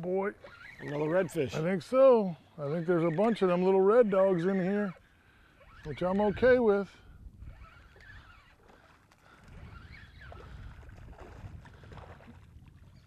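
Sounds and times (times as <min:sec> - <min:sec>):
water noise: 0:00.0 - 0:13.0
low wind rumble: 0:05.9 - 0:08.3, 0:09.3 - 0:13.0.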